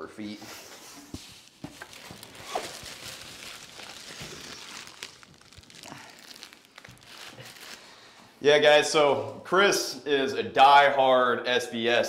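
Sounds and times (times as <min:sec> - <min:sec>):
plastic wrapping crinkling: 0:01.1 - 0:08.2.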